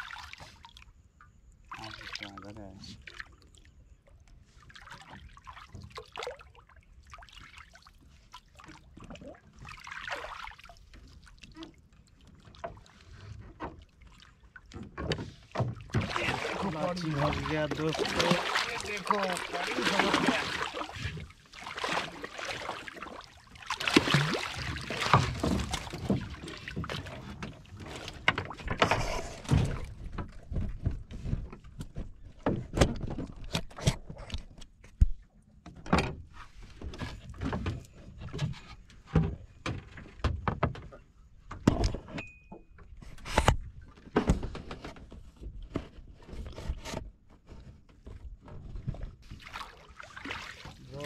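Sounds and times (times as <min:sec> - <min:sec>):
fish thrashing and splashing: 0:04.7 - 0:12.9, 0:15.6 - 0:30.6, 0:49.3 - 0:51.0.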